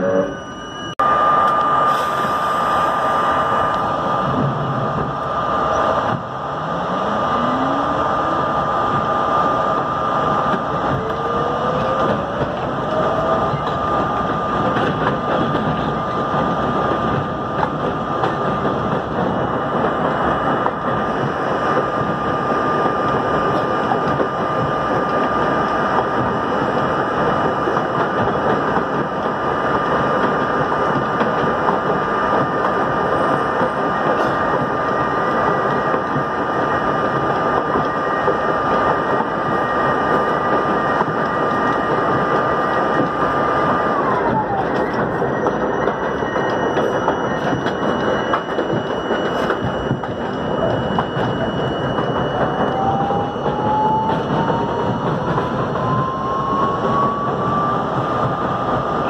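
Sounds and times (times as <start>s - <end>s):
steady high tone: 0.0s - 4.4s, 5.2s - 14.2s, 42.5s - 58.2s
traction motor whine rising: 5.2s - 14.0s.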